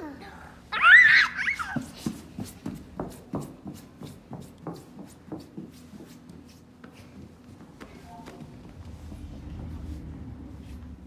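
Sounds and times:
faint low hum: 6.8s - 11.0s.

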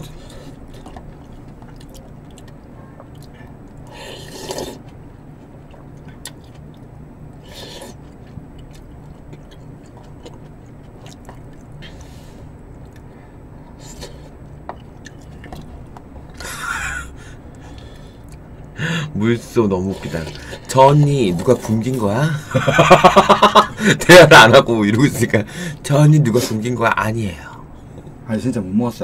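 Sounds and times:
steady low hum: 0.0s - 29.0s
chewing: 0.2s - 13.2s, 13.8s - 16.4s.

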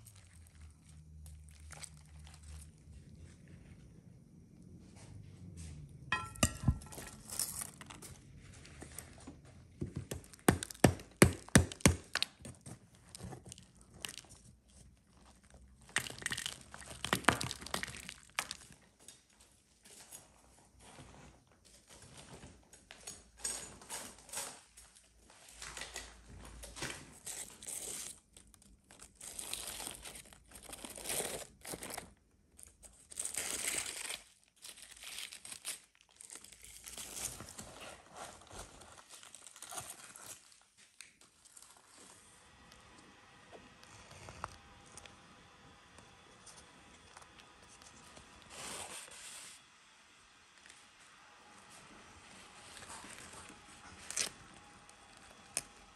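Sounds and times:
dry mud crumbling: 15.5s - 18.7s
foil and leaves crinkling: 26.8s - 42.3s.

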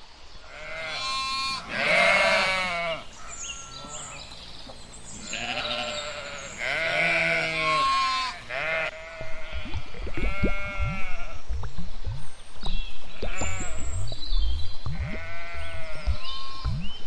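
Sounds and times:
sheep bleating: 0.5s - 4.3s, 5.2s - 11.3s, 15.0s - 16.7s.

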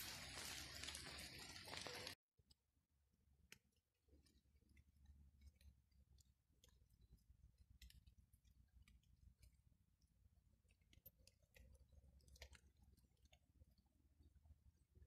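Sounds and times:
small clicks and ticks: 3.4s - 15.0s.

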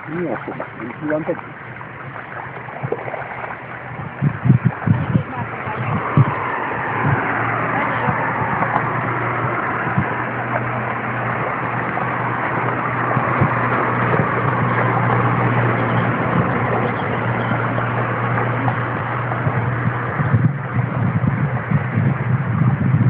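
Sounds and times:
road traffic engine hum: 0.0s - 23.0s.

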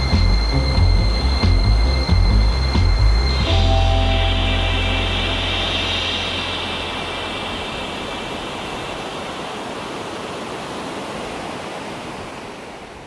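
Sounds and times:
river rapids rushing: 3.5s - 13.0s.

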